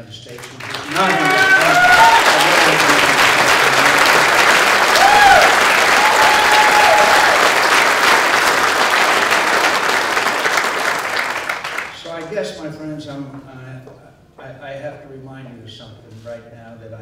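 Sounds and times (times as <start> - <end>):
crowd applauding: 0.3 - 12.3.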